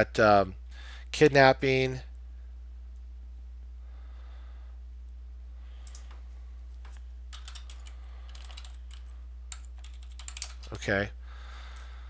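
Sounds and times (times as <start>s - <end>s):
computer keyboard typing: 5.8s - 6.1s, 7.3s - 10.8s.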